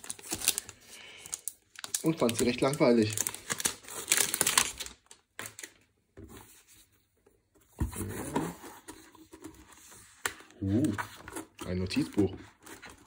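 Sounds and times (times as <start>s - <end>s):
plastic wrapping crinkling: 0.0s - 5.8s.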